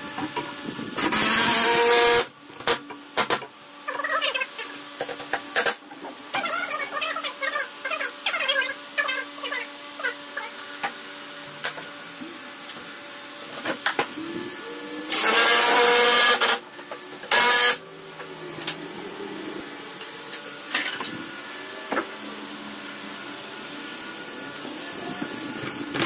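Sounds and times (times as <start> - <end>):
impact driver running: 15.1 - 18.7.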